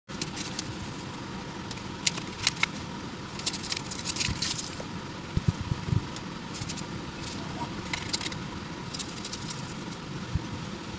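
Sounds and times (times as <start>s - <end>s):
paper pages rustling: 0.1s - 1.1s, 3.3s - 4.8s, 6.5s - 10.0s.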